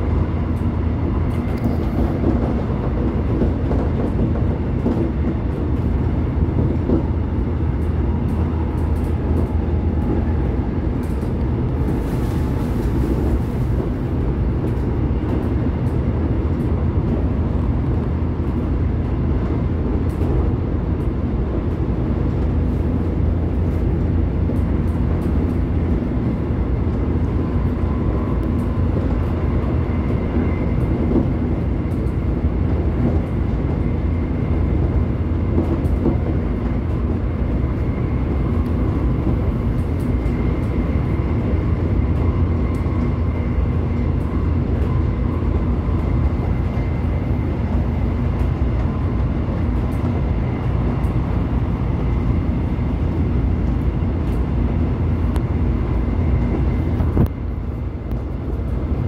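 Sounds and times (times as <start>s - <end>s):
wheels rumbling on rail: 0.0s - 59.0s.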